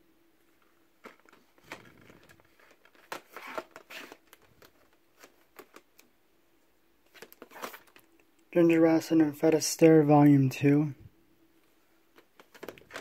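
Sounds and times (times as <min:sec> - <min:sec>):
plastic dvd cases clicking: 0:01.0 - 0:06.1, 0:07.1 - 0:08.1, 0:12.1 - 0:13.0.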